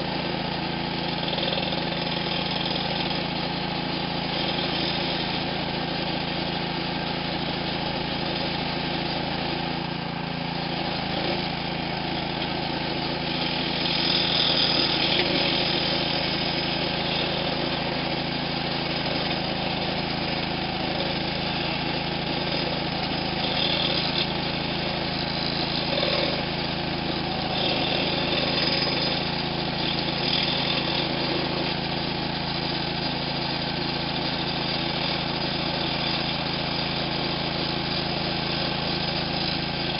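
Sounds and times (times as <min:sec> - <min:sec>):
lawn edger engine running: 0:00.0 - 0:39.9.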